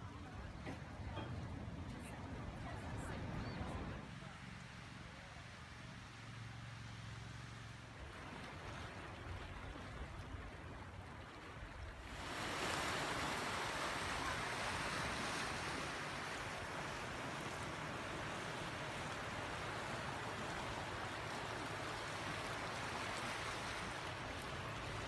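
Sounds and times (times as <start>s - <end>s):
small waves lapping on rocks: 6.4s - 25.0s.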